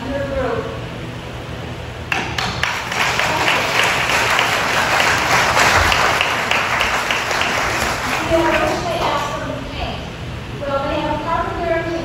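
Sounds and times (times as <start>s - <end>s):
congregation applauding: 2.1s - 9.4s.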